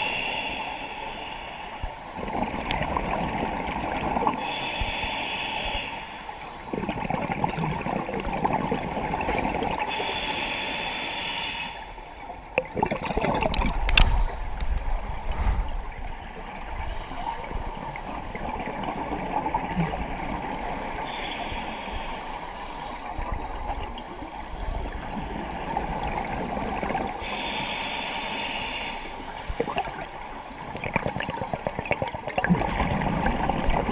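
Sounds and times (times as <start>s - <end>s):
regulator hissing inhale: 0.0s - 2.2s, 4.4s - 6.7s, 9.8s - 12.4s, 21.0s - 25.6s, 27.2s - 30.8s
gurgling exhaled bubbles: 6.7s - 9.9s, 12.6s - 16.9s, 29.5s - 33.9s.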